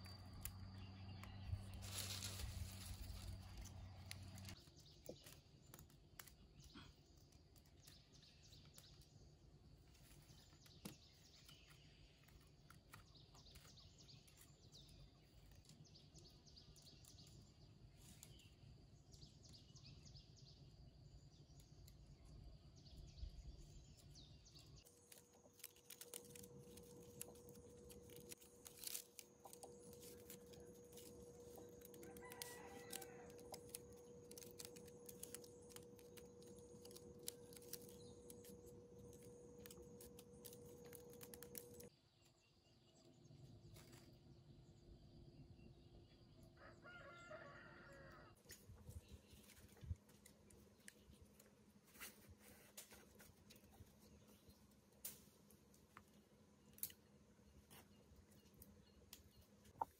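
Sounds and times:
bamboo strips clicking: 0.1s - 9.2s, 24.8s - 41.9s, 56.7s - 57.1s.

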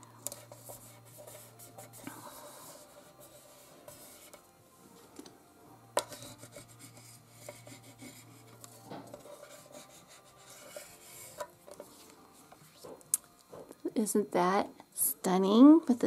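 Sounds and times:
paper rubbing and scraping: 0.3s - 4.4s, 6.1s - 12.9s.

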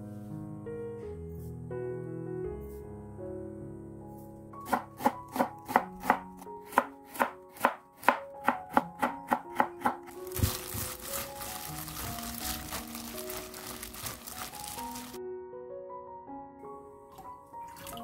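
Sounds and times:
plastic glove rustling: 10.1s - 15.2s.

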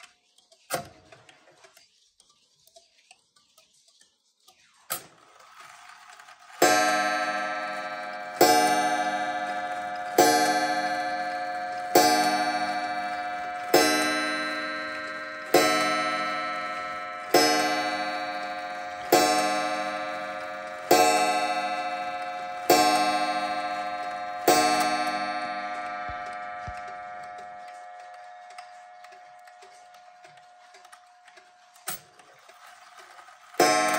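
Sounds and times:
wall clock gong striking: 6.6s - 30.3s, 33.6s - 33.9s.

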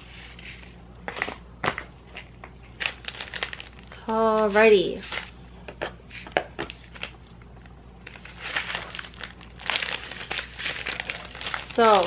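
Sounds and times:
plastic bag crinkling: 1.2s - 5.4s, 8.0s - 12.0s.

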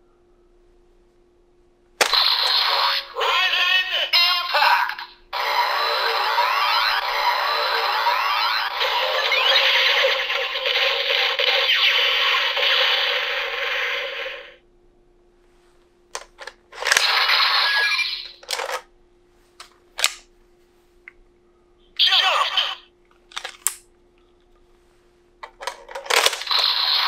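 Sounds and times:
toy belt electronic sound effects: 2.0s - 14.6s, 16.9s - 18.5s, 26.1s - 27.0s
plastic clicks and rattles: 25.4s - 26.5s.

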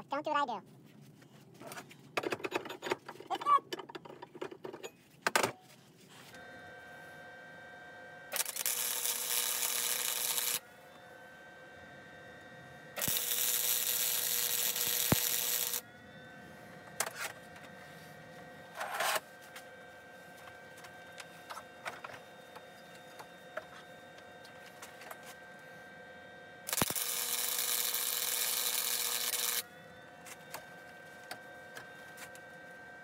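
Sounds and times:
faint steady hum: 4.8s - 33.0s
welding arc crackling: 8.3s - 10.6s, 13.0s - 15.8s, 26.6s - 29.6s.

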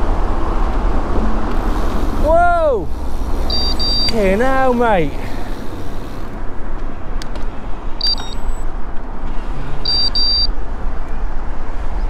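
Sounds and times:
wind and road rush: 0.0s - 12.0s
short high electronic beeps: 3.5s - 4.2s, 8.0s - 8.6s, 9.9s - 10.5s.

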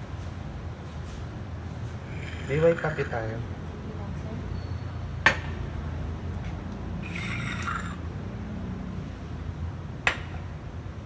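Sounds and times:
cup and saucer clinking: 7.0s - 8.0s.

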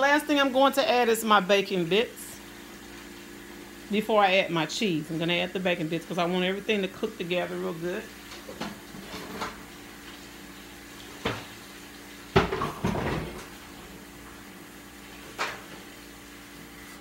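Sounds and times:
kitchen items knocking and clattering: 12.3s - 13.8s.

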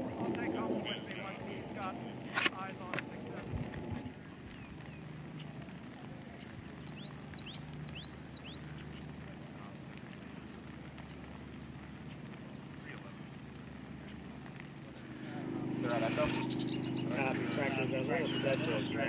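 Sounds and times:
low steady hum: 0.0s - 19.0s
rapid high chirping: 11.1s - 19.0s
downward-sliding whistled calls: 15.1s - 19.0s.

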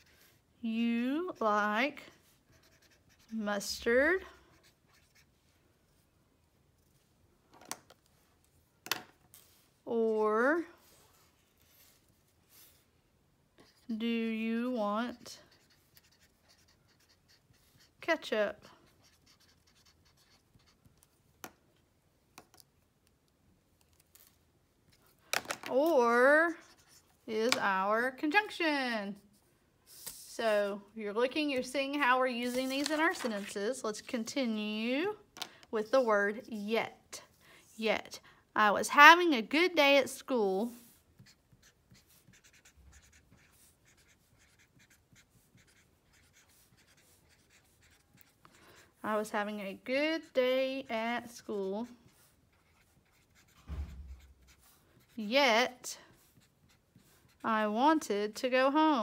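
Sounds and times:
marker strokes on paper: 1.2s - 5.4s, 15.0s - 21.2s, 31.5s - 34.4s, 40.6s - 58.1s.

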